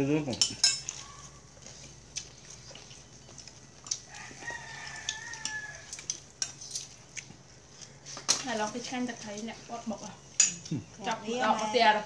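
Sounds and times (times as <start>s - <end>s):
dishes and cutlery clinking: 0.3s - 1.3s, 10.3s - 10.8s
rooster crowing: 4.1s - 6.2s.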